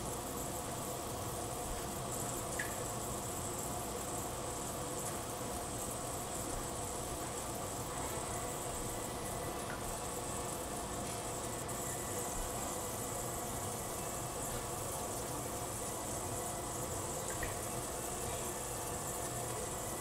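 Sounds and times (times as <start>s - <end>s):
pressure cooker hissing: 0.0s - 20.0s.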